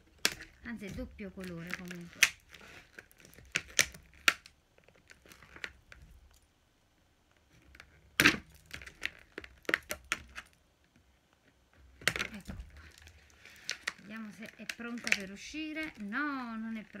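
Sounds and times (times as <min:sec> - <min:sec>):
scissors cutting plastic: 0:00.0 - 0:06.0, 0:12.0 - 0:17.0
plastic packaging crackling: 0:00.0 - 0:06.4, 0:07.4 - 0:10.6, 0:11.7 - 0:17.0.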